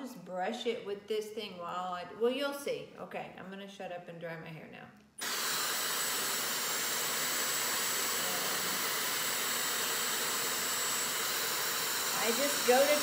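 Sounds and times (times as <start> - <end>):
hair dryer blowing: 5.2 - 13.0.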